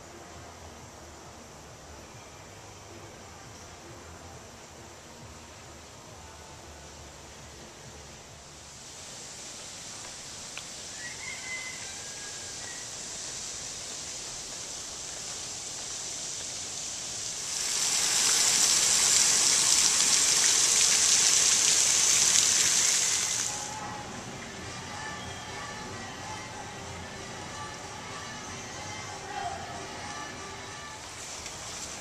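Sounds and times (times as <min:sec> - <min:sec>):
fountain splashing into pool: 0:13.0 - 0:23.8.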